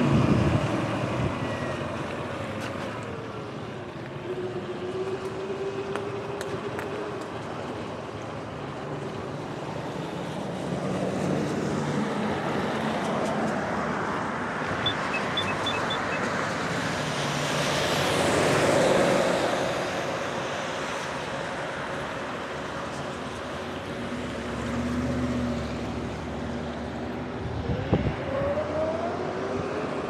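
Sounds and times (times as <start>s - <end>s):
short high chirps: 14.8s - 16.2s
tyres hissing on wet road: 16.2s - 27.2s.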